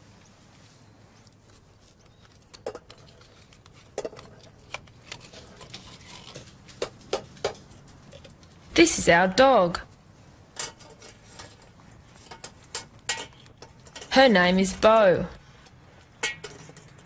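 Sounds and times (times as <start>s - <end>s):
utensil scraping metal tin: 10.6s - 15.2s.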